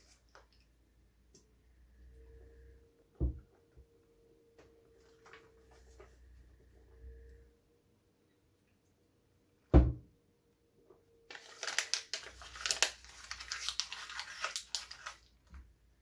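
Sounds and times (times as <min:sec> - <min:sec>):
loud thump: 0:09.7 - 0:10.1
paper crinkling and tearing: 0:11.3 - 0:15.4.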